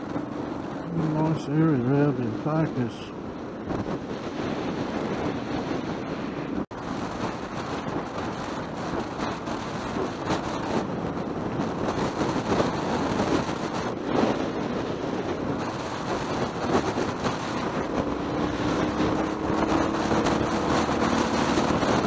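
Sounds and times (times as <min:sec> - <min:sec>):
motorcycle road noise: 0:00.0 - 0:22.0
wind rushing over microphone: 0:00.0 - 0:22.0
motorcycle engine running: 0:12.7 - 0:22.0.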